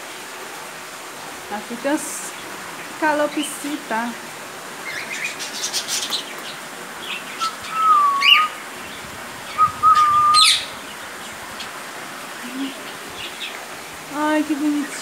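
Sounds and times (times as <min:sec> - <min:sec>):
scattered bird chirps: 0:04.9 - 0:08.6, 0:09.5 - 0:10.8
whistled notes with rising chirp: 0:07.3 - 0:08.6, 0:09.5 - 0:10.8.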